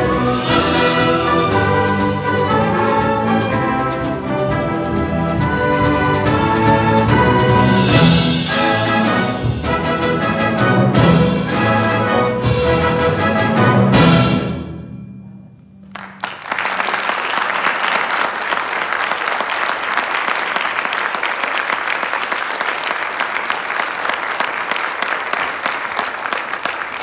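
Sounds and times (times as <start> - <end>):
audience applauding: 15.8 - 27.0.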